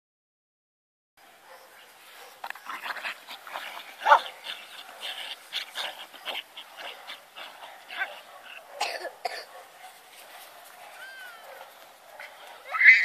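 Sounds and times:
small dog yipping and barking: 10.8s - 11.7s.

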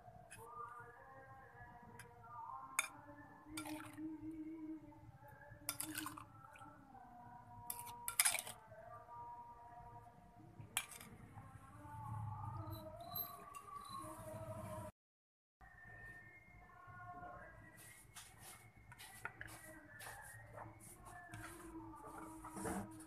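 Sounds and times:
spoon clinking on china plate: 5.7s - 6.2s, 7.7s - 8.5s.

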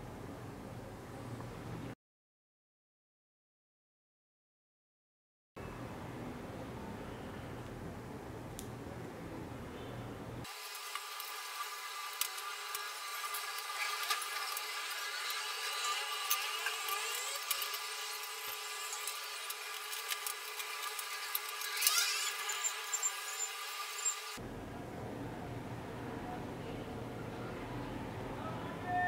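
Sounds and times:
high-pitched whine: 11.1s - 24.4s
rising squeak: 20.5s - 24.4s.

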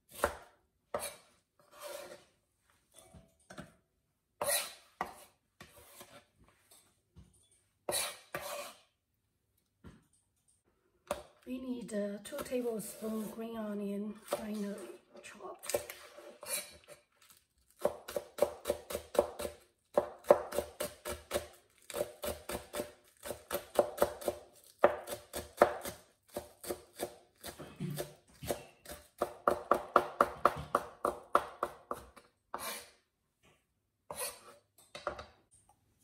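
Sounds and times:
blade scraping across board: 1.0s - 2.3s, 7.9s - 8.9s, 32.5s - 33.0s
knife chopping on plastic board: 17.8s - 32.8s.

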